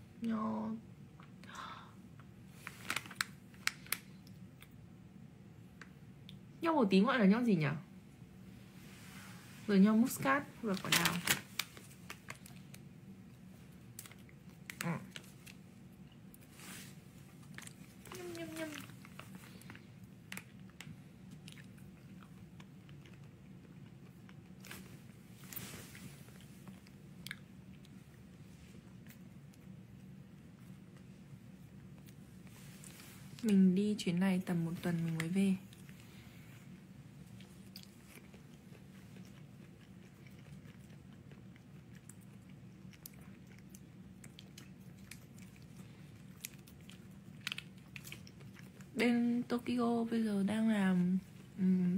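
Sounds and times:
low steady hum: 0.0 - 51.9
chewing and wet mouth clicks: 26.4 - 28.0, 37.3 - 48.9.

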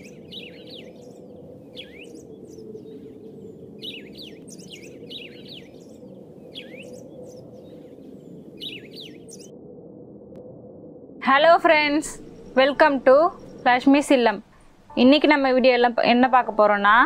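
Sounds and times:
small birds chirping: 0.0 - 9.5, 11.7 - 15.4
low background rush: 10.4 - 17.0.

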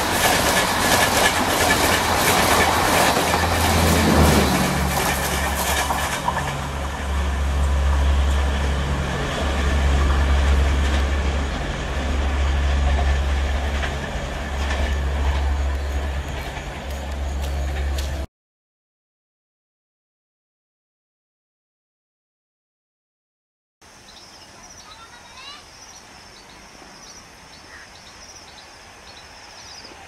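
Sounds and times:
train rumbling: 0.0 - 18.3.

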